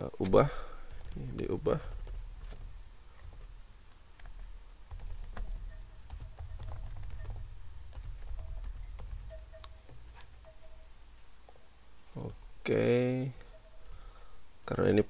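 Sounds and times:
low steady hum: 0.0 - 15.0
keyboard key clicks: 0.2 - 10.6.

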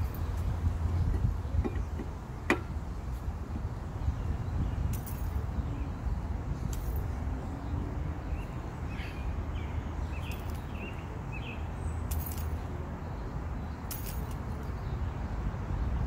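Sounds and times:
low outdoor rumble: 0.0 - 16.0
light metallic clinks: 4.8 - 5.5, 12.0 - 12.7, 13.8 - 14.8.

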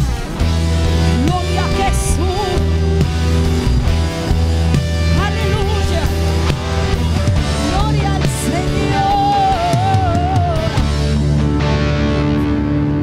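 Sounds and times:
worship band playing: 0.0 - 13.0
voices singing: 7.4 - 10.9.

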